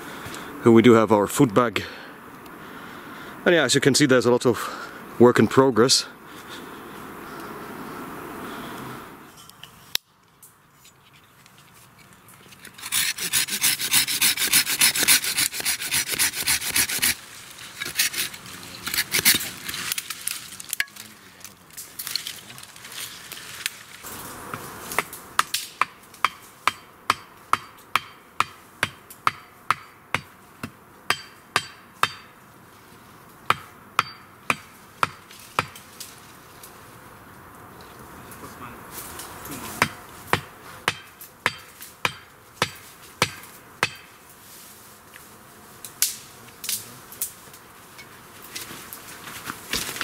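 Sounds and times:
hand saw cutting wood: 12.6s - 20.0s.

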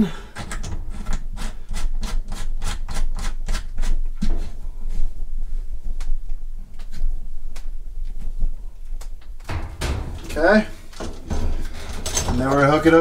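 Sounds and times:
metal coupling clicking and scraping: 9.4s - 13.0s.

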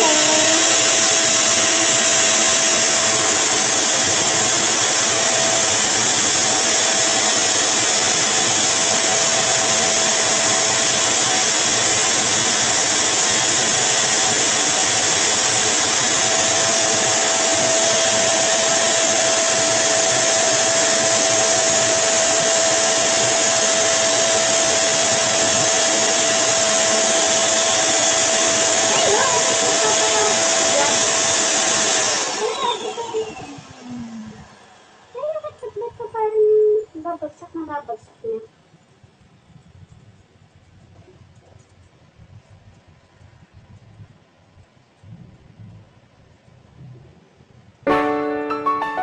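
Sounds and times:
grooming dryer blowing air: 0.0s - 36.1s.

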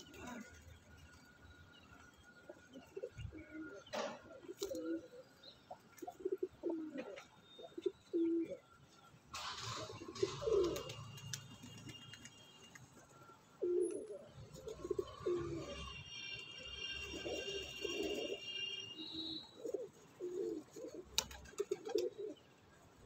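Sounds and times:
pigeons cooing: 0.0s - 0.8s, 2.4s - 8.7s, 9.4s - 11.2s, 13.6s - 16.0s, 17.0s - 18.6s, 19.2s - 22.6s.

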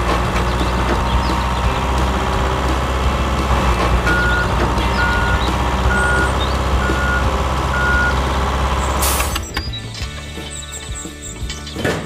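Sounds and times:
engine droning: 0.0s - 11.9s
reversing alarm beeps: 4.0s - 9.9s.

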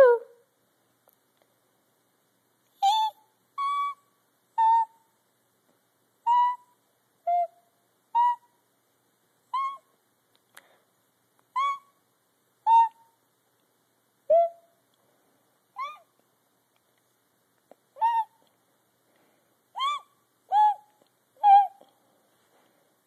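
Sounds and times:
high-pitched whistle-like squeaks: 2.8s - 5.0s, 6.3s - 8.5s, 9.5s - 9.9s, 11.6s - 12.0s, 12.7s - 13.2s, 15.8s - 16.1s, 19.8s - 21.8s.

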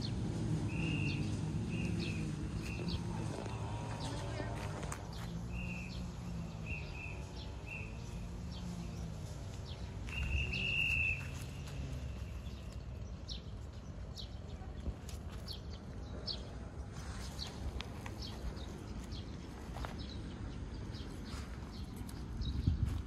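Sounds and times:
birds whistling and chirping: 0.0s - 3.4s, 5.2s - 9.1s, 9.7s - 14.3s.

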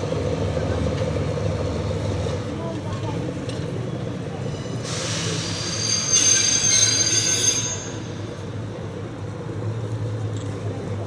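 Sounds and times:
diesel engine hum: 0.0s - 11.0s
train wheel squeal: 3.8s - 8.9s.

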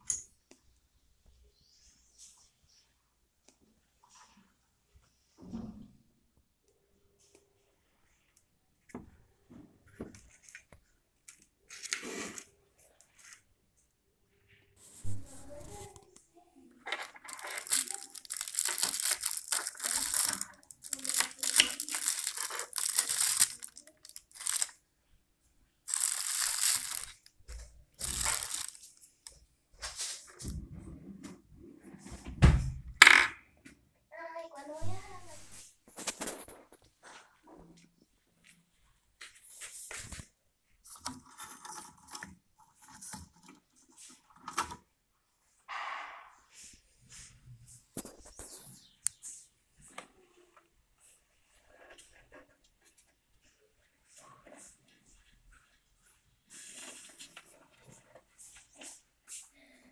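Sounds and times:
crinkling handling noise: 14.8s - 16.2s, 16.8s - 24.8s, 25.8s - 30.6s, 34.8s - 44.8s.

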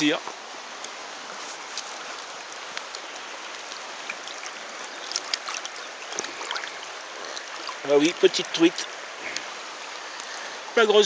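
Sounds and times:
river running over stones: 0.0s - 11.0s
small splashes of hand in water: 3.6s - 7.8s.

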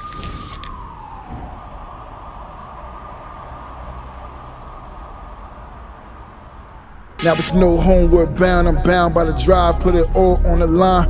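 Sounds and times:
descending tone: 0.6s - 11.0s
low rumble: 6.6s - 11.0s
hissing drone: 6.8s - 11.0s.

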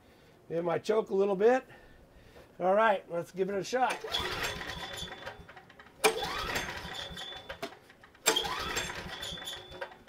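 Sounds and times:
generator engine cranking: 3.9s - 10.0s
generator recoil starter pull: 3.9s - 10.0s.

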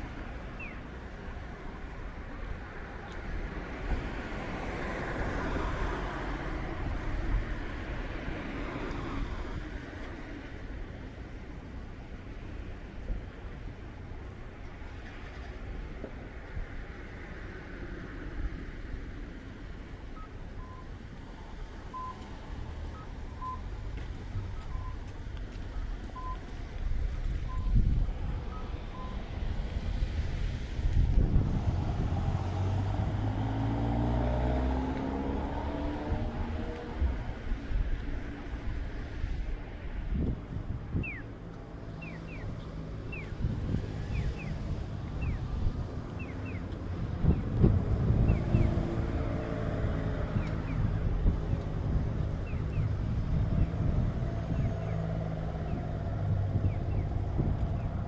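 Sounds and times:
wind on microphone: 26.8s - 41.4s, 42.3s - 58.0s.

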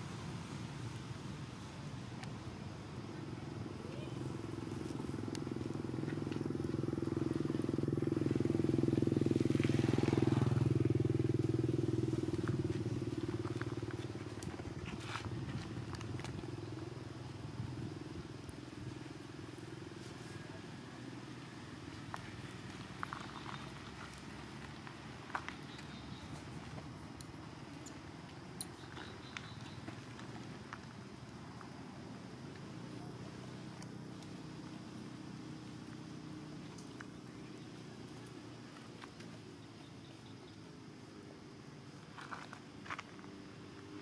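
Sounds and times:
vehicle engine passing by: 4.0s - 16.5s.

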